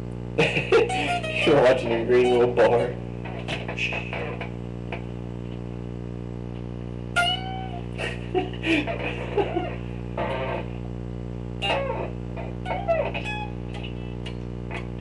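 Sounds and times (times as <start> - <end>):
amp hum: 0.0 - 15.0
electric guitar notes: 0.2 - 4.6, 7.0 - 10.9, 11.5 - 15.0.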